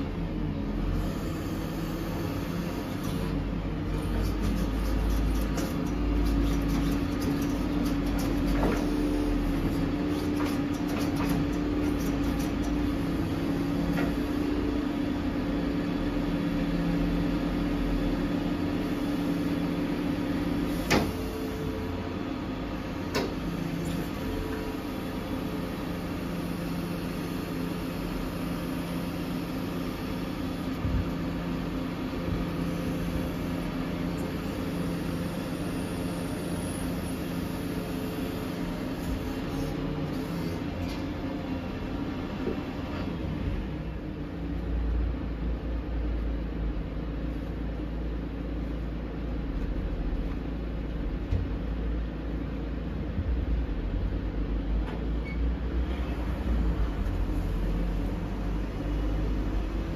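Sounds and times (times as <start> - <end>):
hydraulic whine: 23.0 - 43.6.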